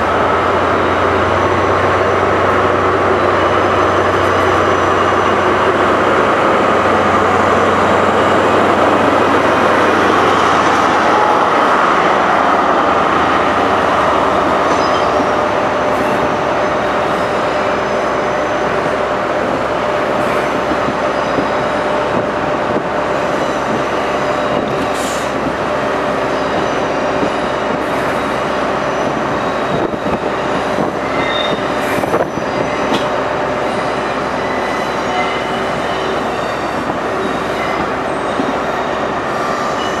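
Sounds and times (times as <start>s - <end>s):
train wheels on rails: 0.0s - 40.0s
wheel squeals: 31.0s - 33.0s.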